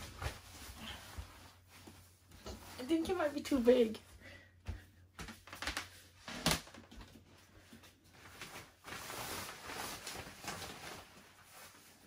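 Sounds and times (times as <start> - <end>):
plastic sheet crinkling and rustling: 5.2 - 12.0.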